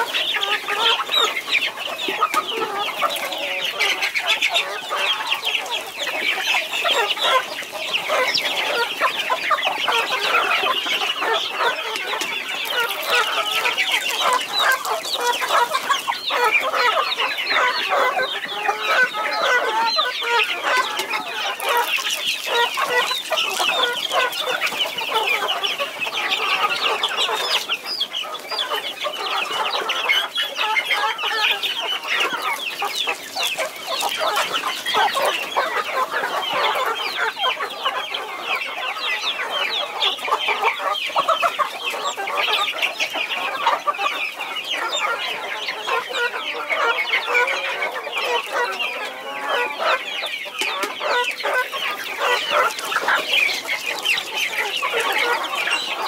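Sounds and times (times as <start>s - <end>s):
chicks cheeping: 0.0s - 56.0s
beaks pecking wooden trough: 19.9s - 26.3s.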